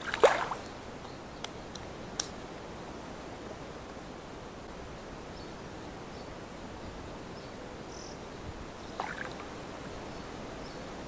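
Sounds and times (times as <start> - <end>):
fish splashing on water: 0.0 - 0.6, 9.0 - 9.5
outdoor background hiss: 0.0 - 11.0.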